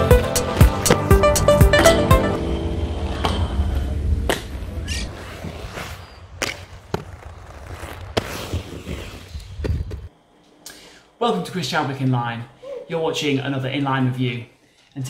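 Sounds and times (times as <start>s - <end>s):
background music: 0.0s - 2.7s.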